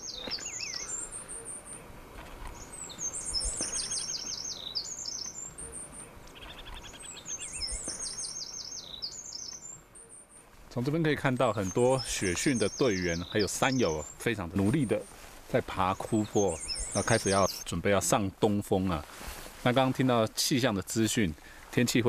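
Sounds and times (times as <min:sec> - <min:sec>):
songbirds singing high notes: 0:00.0 - 0:01.9, 0:02.5 - 0:18.2
low bird trills: 0:00.0 - 0:10.5, 0:15.9 - 0:17.7.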